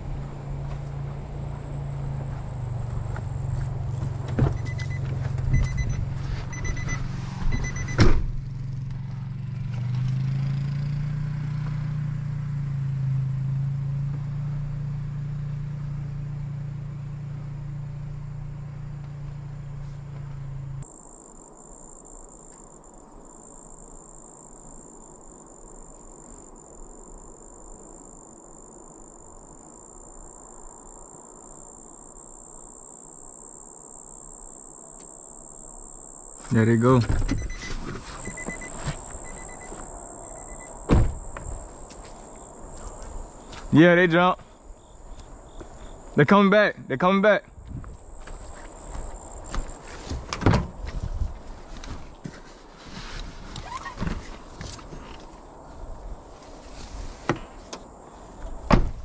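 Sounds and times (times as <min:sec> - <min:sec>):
crickets trilling: 0:00.0 - 0:20.2, 0:20.8 - 0:59.0
short beeps: 0:04.6 - 0:08.0, 0:37.2 - 0:40.7
loud thump: 0:07.4 - 0:08.4, 0:40.9 - 0:41.6, 0:58.7 - 0:59.0.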